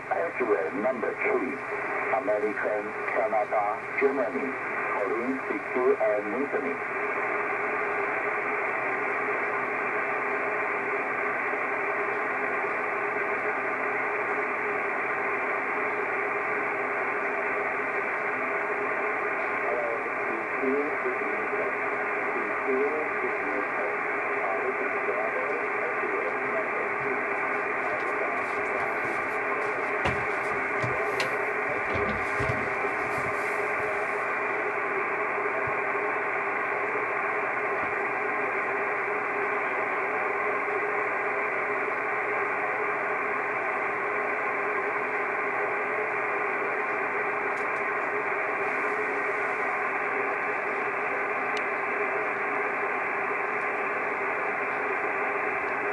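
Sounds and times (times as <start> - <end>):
radio static hiss: 0.0 - 55.9
faint clicks and thumps: 27.9 - 33.9.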